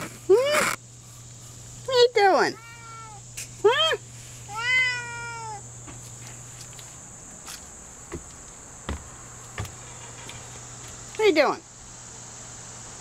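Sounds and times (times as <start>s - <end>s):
cat meowing: 2.5s - 3.2s, 4.5s - 5.6s.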